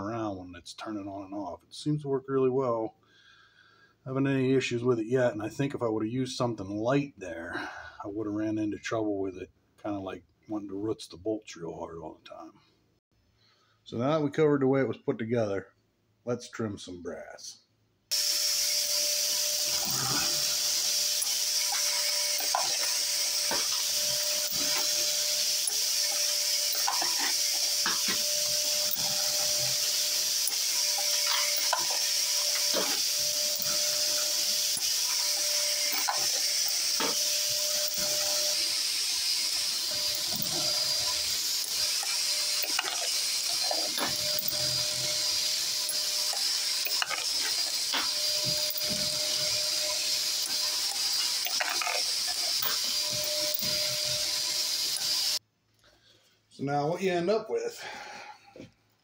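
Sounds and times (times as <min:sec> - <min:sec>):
trimmer motor whirring: 0:18.1 - 0:55.4
vacuum cleaner running: 0:18.1 - 0:55.4.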